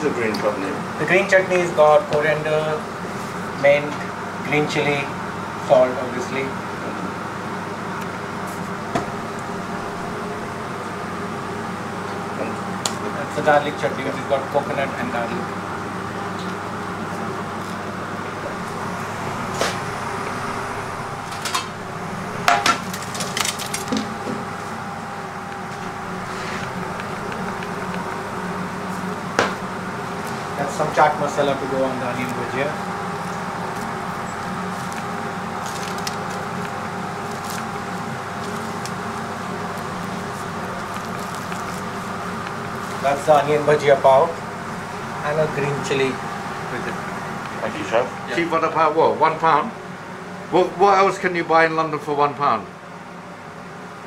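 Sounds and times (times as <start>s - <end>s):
steady background hum: 0.0s - 54.0s
faint crackles of fried food: 34.6s - 43.3s.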